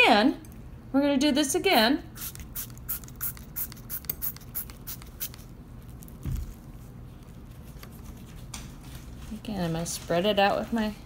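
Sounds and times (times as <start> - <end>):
spray bottle squirting: 2.2 - 5.5.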